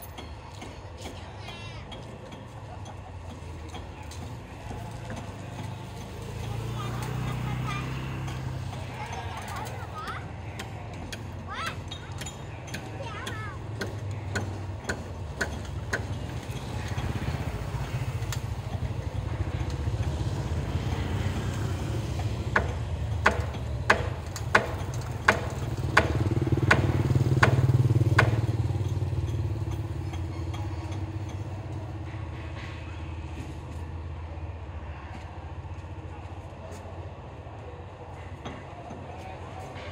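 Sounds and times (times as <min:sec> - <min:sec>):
vehicle engine hum: 0:00.0 - 0:39.9
hammer striking roof: 0:10.0 - 0:17.2, 0:22.2 - 0:32.9.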